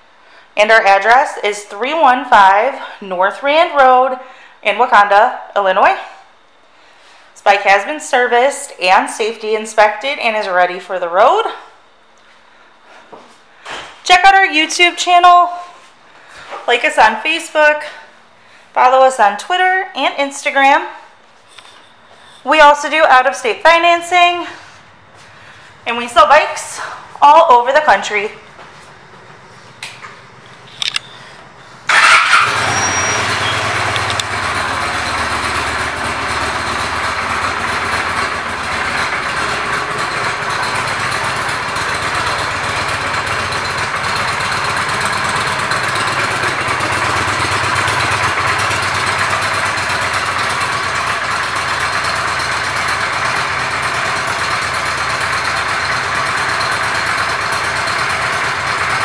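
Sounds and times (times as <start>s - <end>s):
motorcycle engine starting and idling: 23.0s - 59.0s.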